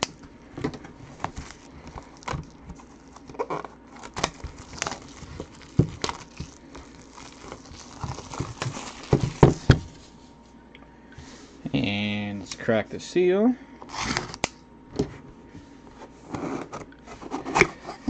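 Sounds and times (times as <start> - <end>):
shrink wrap crinkling: 0.0 - 10.2.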